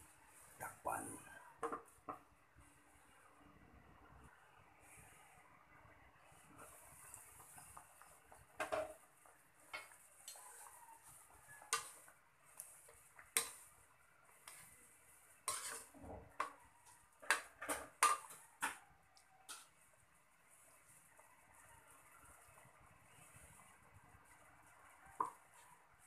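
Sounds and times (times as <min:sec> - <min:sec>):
faint hiss of simmering sauce: 0:00.0 - 0:26.0
metal ladle scraping a wok: 0:11.6 - 0:13.8, 0:14.4 - 0:18.8.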